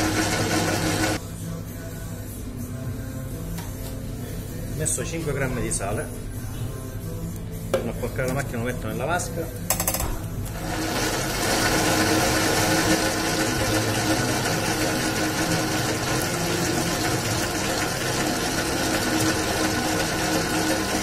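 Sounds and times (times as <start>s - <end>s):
spiral dough mixer running: 0.0s - 1.2s, 10.4s - 21.0s.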